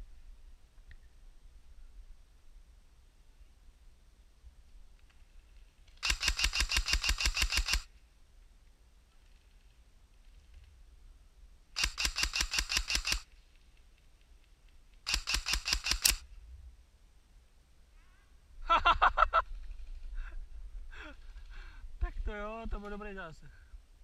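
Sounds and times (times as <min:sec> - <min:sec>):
airsoft gun full-auto bursts: 0:06.0 - 0:07.9, 0:11.8 - 0:13.3, 0:15.1 - 0:16.2.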